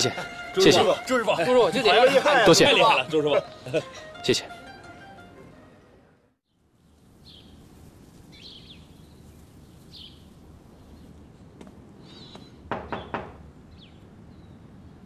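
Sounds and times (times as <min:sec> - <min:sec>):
low outdoor ambience: 0:00.0 - 0:15.0
birds chirping: 0:08.3 - 0:11.3, 0:12.0 - 0:14.8.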